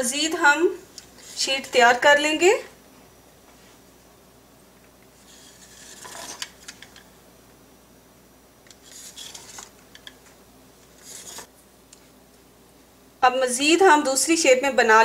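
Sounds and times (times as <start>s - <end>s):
knife cutting pastry dough: 5.3s - 6.8s.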